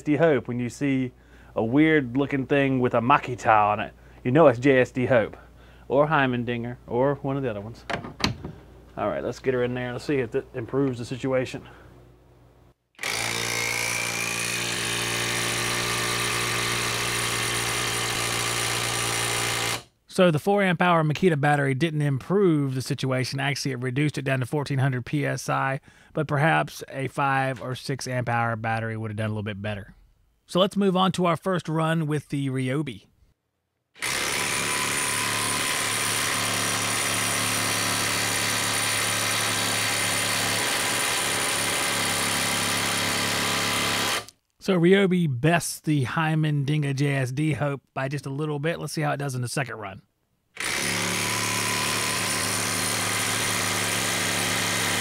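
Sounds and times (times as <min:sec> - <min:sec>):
impact wrench hammering: 0:13.0 - 0:19.9.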